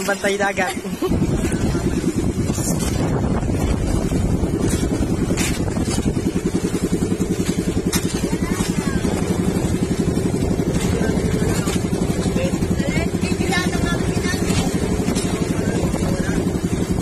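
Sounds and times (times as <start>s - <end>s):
boat engine pulsing drone: 0.0s - 17.0s.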